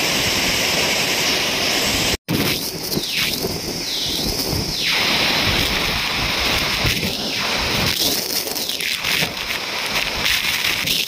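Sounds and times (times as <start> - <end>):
waterfall rushing: 0.0 - 11.0
wind buffeting microphone: 2.3 - 11.0.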